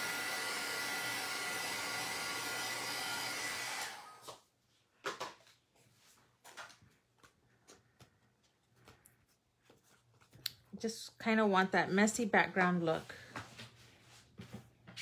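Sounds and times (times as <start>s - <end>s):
heat tool blowing with whine: 0.0s - 4.2s.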